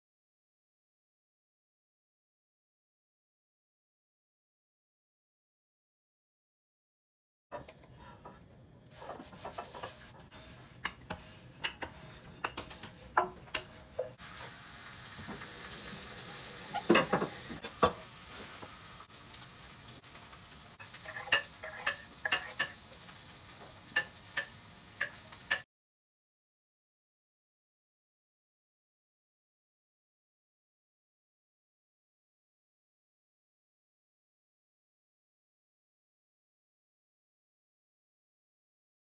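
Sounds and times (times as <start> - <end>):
knife tapping and scraping stone: 9.4 - 14.2.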